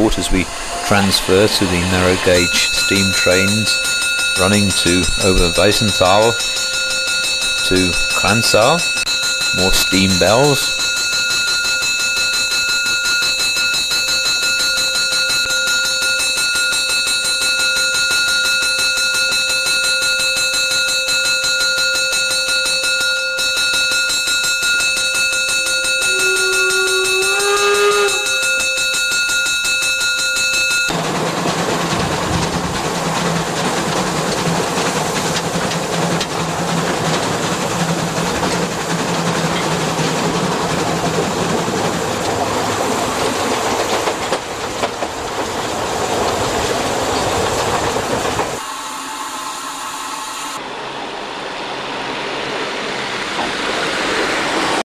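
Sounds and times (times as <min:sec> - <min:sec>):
bell ringing: 0:00.0 - 0:31.1
steam train rumbling and clattering: 0:00.0 - 0:54.8
steam whistle: 0:25.1 - 0:29.1.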